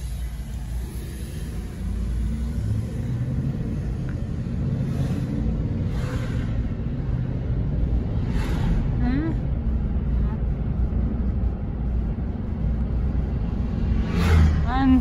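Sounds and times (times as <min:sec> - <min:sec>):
car engine and tyre rumble: 0:00.0 - 0:15.0
brief whooshes: 0:14.0 - 0:14.6.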